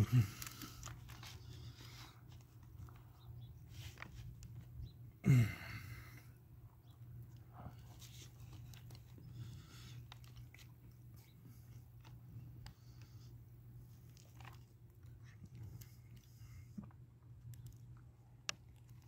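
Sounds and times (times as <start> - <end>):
steady low hum: 0.0 - 19.0
person chewing food: 7.3 - 13.2, 13.8 - 19.0.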